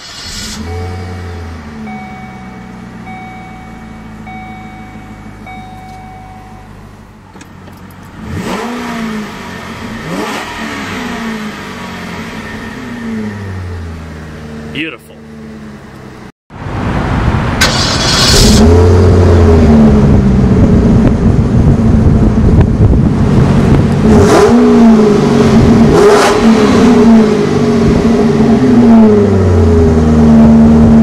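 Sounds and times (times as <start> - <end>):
car engine idling and revving: 0.0 - 31.0.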